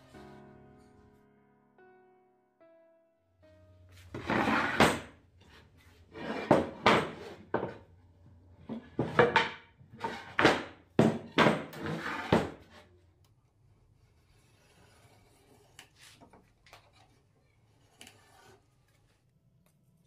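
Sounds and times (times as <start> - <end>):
wooden boards scraping: 4.1 - 7.8, 8.6 - 12.9.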